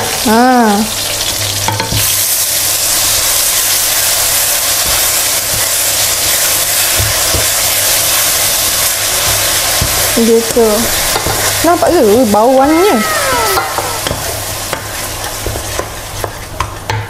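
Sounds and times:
paste sizzling in hot oil: 0.0 - 17.0
wooden spatula knocking pan: 4.3 - 17.0.

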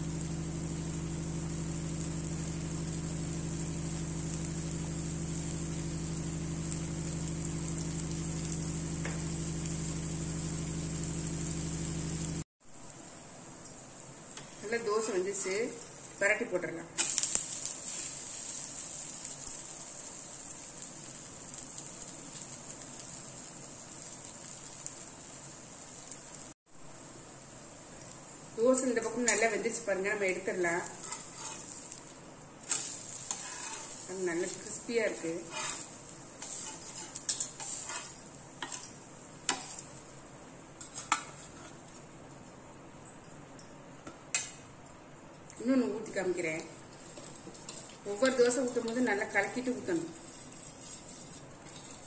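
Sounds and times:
dosa sizzling on griddle: 0.0 - 42.3, 46.0 - 52.0
faint steady hiss: 11.6 - 52.0
spatula clinking on metal pan: 35.5 - 39.9.

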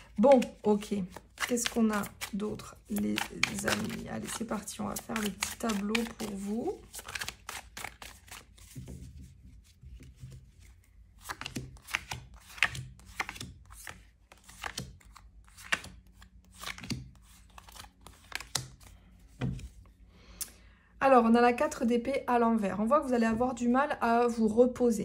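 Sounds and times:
cards tapping and snapping: 0.0 - 8.8, 11.2 - 19.7.

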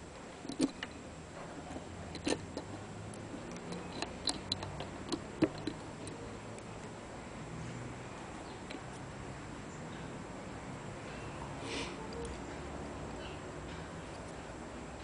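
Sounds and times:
light metallic clicks and taps: 1.7 - 7.0.

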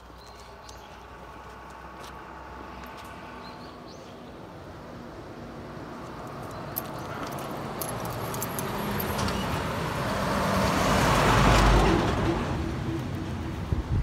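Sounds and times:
car passing by: 7.1 - 13.8.

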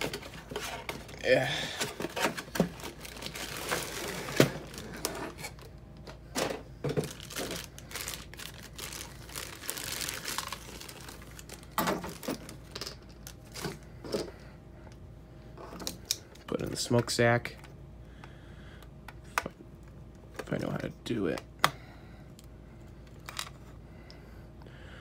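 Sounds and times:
plastic bag crinkling: 1.7 - 5.7, 7.0 - 13.8.

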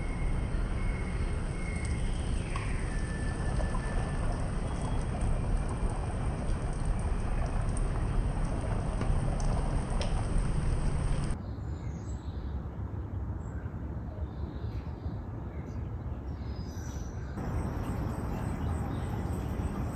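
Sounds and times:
water spray pattering on foliage: 1.4 - 11.4.

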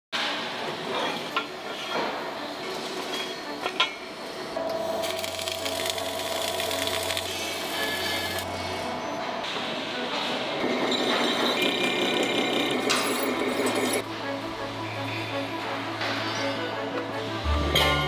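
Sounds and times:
welding arc crackling and hissing: 4.9 - 8.5.

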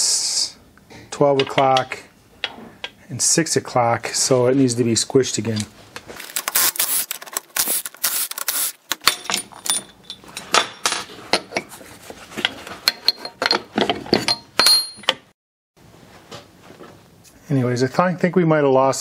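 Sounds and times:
metal clinks and knocks: 8.9 - 11.7, 12.4 - 15.3.

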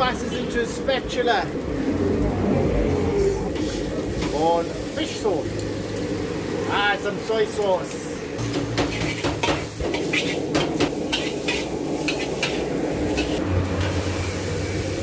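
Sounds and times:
noodles sizzling in a wok: 3.5 - 15.0
metal clinking and scraping on pan: 8.4 - 14.0.

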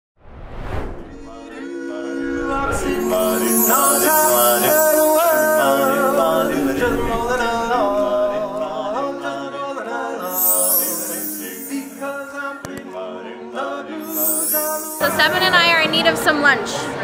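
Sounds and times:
men singing a cappella harmony: 1.2 - 15.6.

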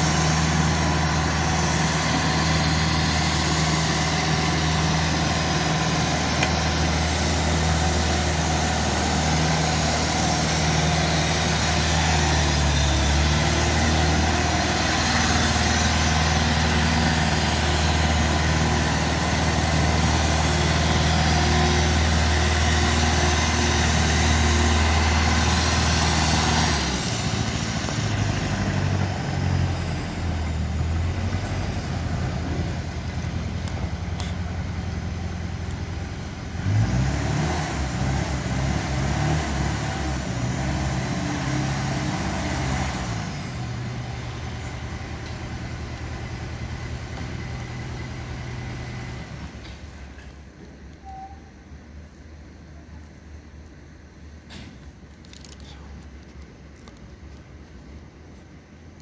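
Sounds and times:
tractor engine running: 0.0 - 51.0
faint high whine: 43.5 - 56.9.

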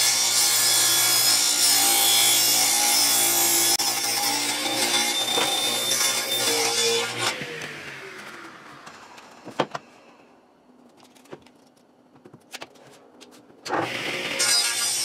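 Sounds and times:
table saw blade whine: 13.7 - 15.0.

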